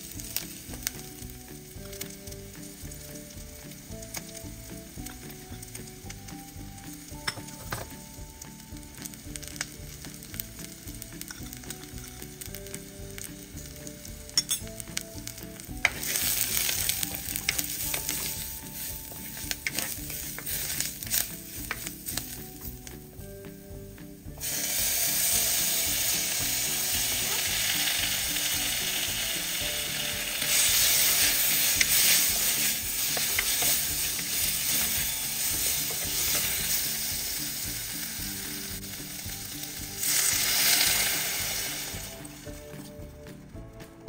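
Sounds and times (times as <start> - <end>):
onions and spices sizzling: 0.0 - 44.0
wooden spoon stirring: 11.2 - 23.2, 29.7 - 37.3.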